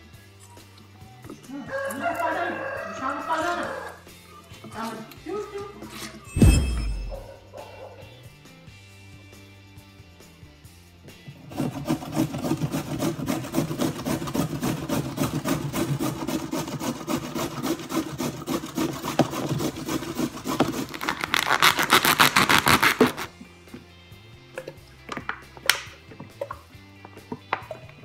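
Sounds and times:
carrot rasping on metal grater: 11.4s - 23.3s.

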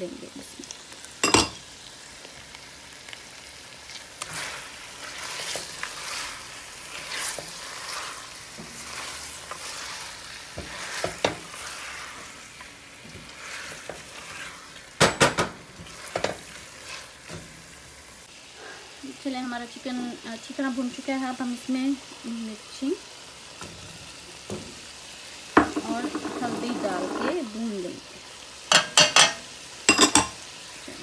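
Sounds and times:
chicken sizzling in oil: 0.0s - 31.0s
spatula scraping pot: 4.2s - 14.8s, 15.8s - 17.4s, 25.6s - 27.5s.

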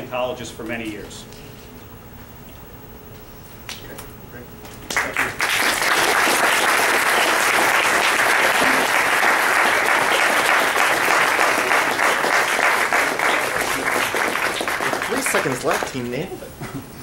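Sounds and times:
audience applauding: 4.9s - 16.2s.

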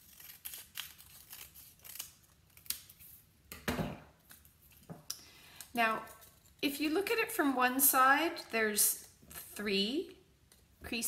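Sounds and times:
scissors snipping paper: 0.0s - 3.1s.

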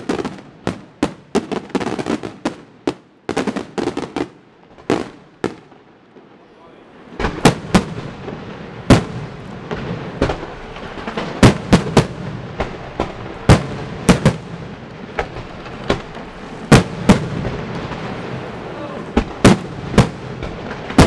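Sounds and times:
firework bangs: 0.0s - 21.0s
firework hiss: 7.0s - 21.0s.

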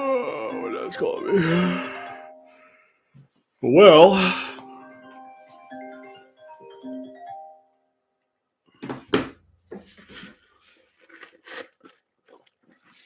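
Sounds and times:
marimba phone ringtone: 0.2s - 2.6s, 4.4s - 7.7s.

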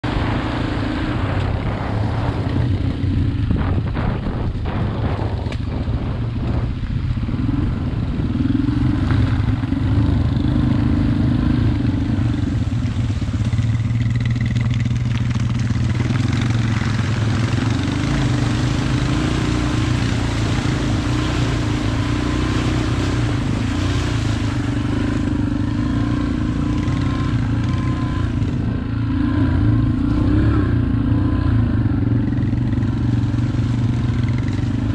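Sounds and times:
dirt bike engine running: 0.0s - 34.9s.

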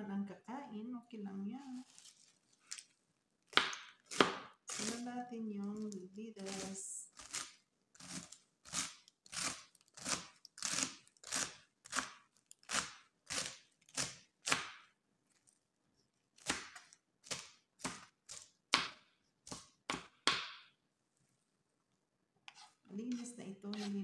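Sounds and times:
knife chopping lettuce: 3.5s - 5.1s, 5.7s - 14.9s, 16.4s - 20.7s, 22.5s - 24.0s.

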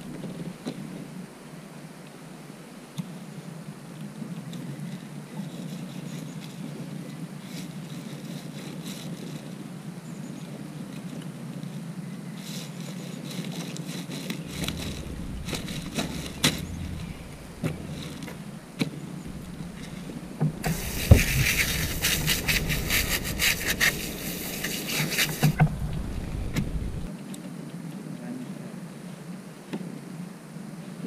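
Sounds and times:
hose nozzle spraying water: 19.3s - 26.8s
light knocks: 19.3s - 27.1s.

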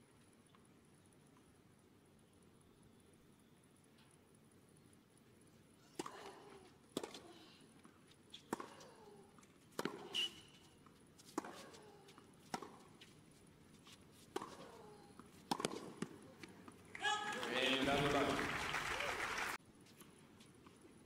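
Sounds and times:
tennis ball hitting rackets and court: 6.0s - 18.2s
shoe squeak: 10.0s - 10.8s.

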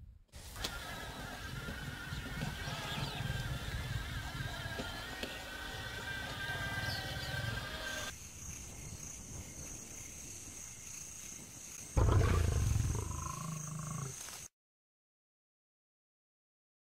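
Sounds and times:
music: 2.6s - 8.1s
lion roaring: 12.0s - 14.2s.

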